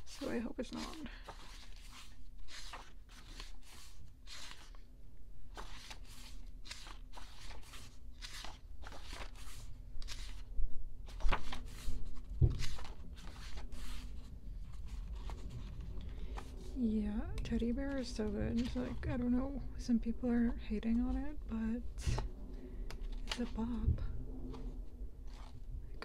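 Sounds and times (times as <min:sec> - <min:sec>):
book pages turning: 0:00.0 - 0:16.8, 0:17.4 - 0:19.7, 0:22.1 - 0:26.0
book bumping: 0:11.2 - 0:13.5.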